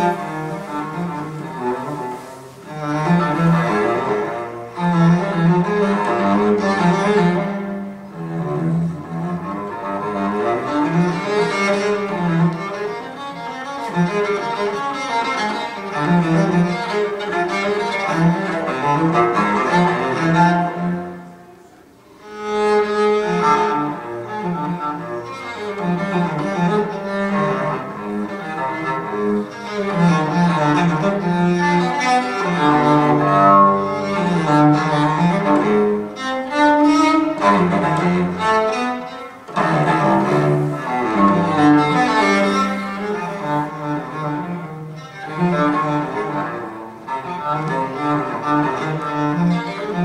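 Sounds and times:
recorded music with low bowed strings: 0:00.0 - 0:50.0.

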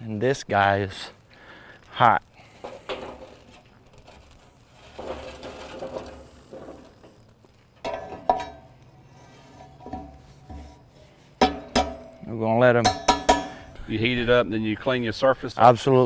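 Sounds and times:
steel basket scraping metal: 0:02.4 - 0:12.4
metal grate clanking: 0:02.6 - 0:07.2, 0:07.8 - 0:08.8, 0:09.4 - 0:13.9.

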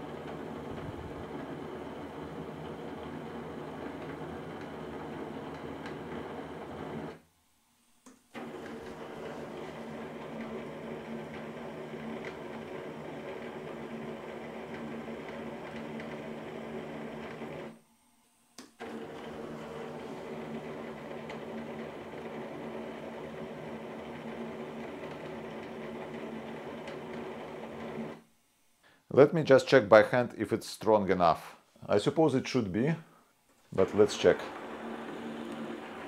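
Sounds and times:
motor whirring: 0:33.8 - 0:36.0.

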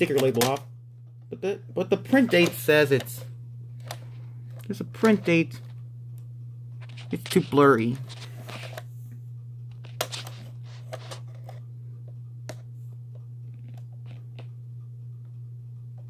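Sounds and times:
low hum: 0:00.0 - 0:16.0
plastic cassette clicks and rubs: 0:02.1 - 0:03.2, 0:06.8 - 0:08.9, 0:09.7 - 0:11.6, 0:13.5 - 0:14.5.

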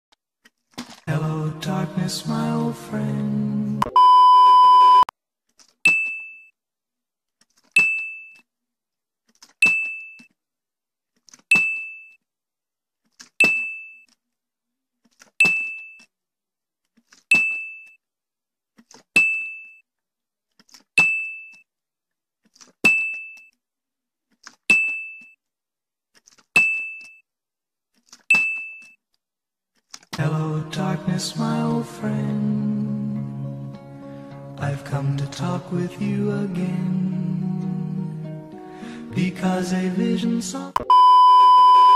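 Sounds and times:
test-pattern beep: 0:03.8 - 0:05.1, 0:40.8 - 0:41.9.

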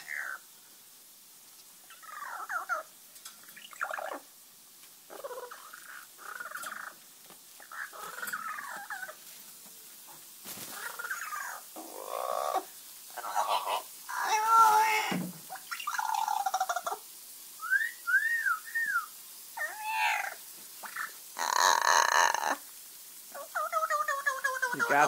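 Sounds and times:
short wavering animal calls: 0:05.1 - 0:07.0.

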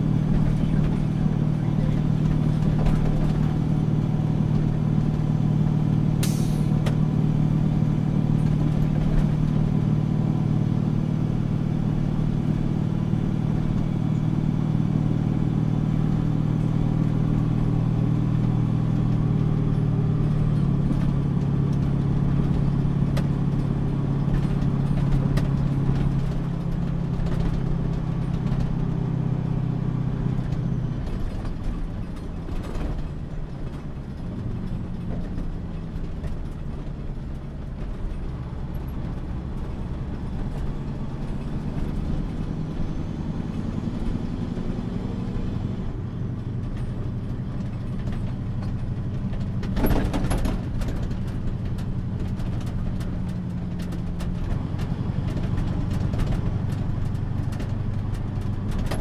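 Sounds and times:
truck engine running: 0:00.0 - 0:59.0
sharp clicks and rattles: 0:46.4 - 0:59.0.

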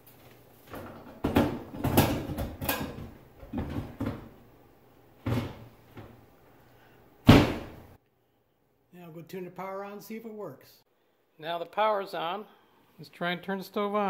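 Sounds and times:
cooktop clunking into countertop: 0:00.7 - 0:04.3
thump: 0:07.2 - 0:07.8.

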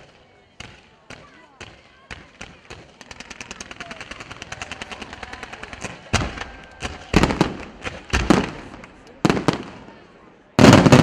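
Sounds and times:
loud firework bangs: 0:05.8 - 0:09.9, 0:10.6 - 0:11.0.

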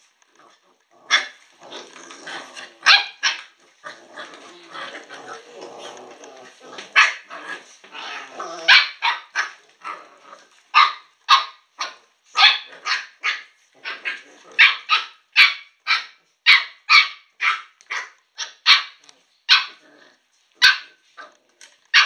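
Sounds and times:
puppies growling softly: 0:00.0 - 0:08.7, 0:09.4 - 0:10.7, 0:13.6 - 0:14.6, 0:19.0 - 0:21.9.

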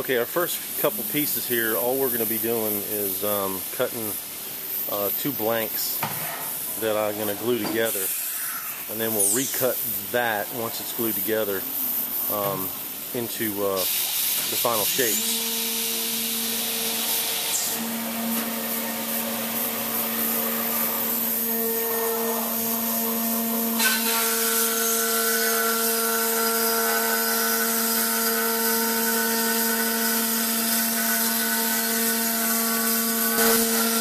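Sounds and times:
high hiss: 0:00.1 - 0:15.4
router spindle whine: 0:14.6 - 0:34.0.

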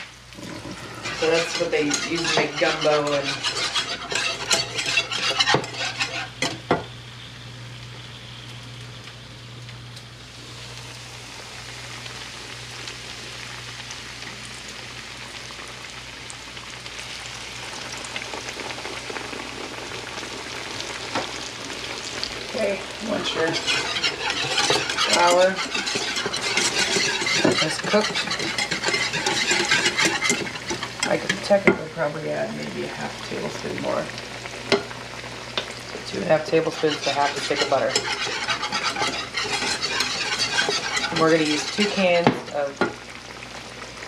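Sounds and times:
flour sizzling in hot grease: 0:00.0 - 0:44.0
stirring clatter: 0:00.4 - 0:06.6, 0:22.5 - 0:31.8, 0:35.6 - 0:43.0.

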